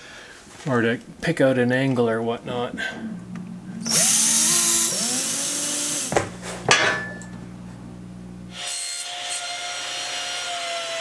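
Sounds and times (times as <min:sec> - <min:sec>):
table saw running: 0:02.8 - 0:06.4.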